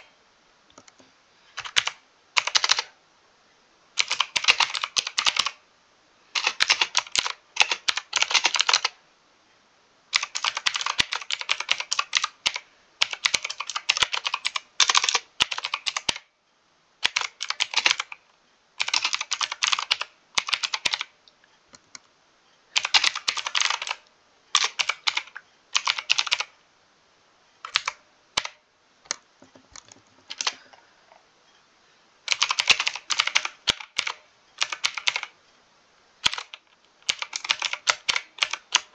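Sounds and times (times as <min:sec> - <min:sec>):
mechanical keyboard typing: 0:01.6 - 0:02.9, 0:04.0 - 0:05.6, 0:06.3 - 0:09.0, 0:10.1 - 0:16.3, 0:17.0 - 0:18.2, 0:18.8 - 0:21.1, 0:22.7 - 0:26.6, 0:27.6 - 0:30.7, 0:32.3 - 0:35.4, 0:36.2 - 0:38.9.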